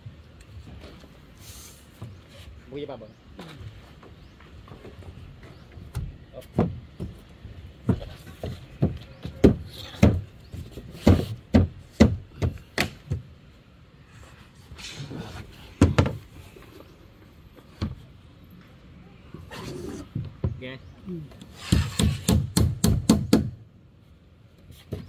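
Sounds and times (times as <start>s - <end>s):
hammer driving nails into wood: 21.5s - 23.6s.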